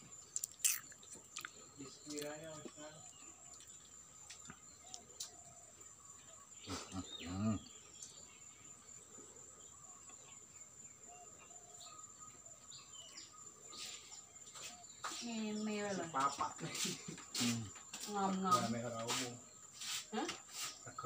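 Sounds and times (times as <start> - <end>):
faint bird chirps: 0.0 - 21.0
high-pitched insect drone: 0.4 - 1.0.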